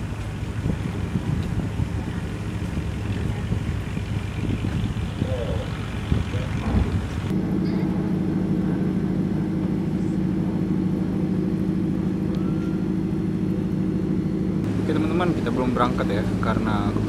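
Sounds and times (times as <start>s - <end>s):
large diesel engine idling: 0.0s - 17.0s.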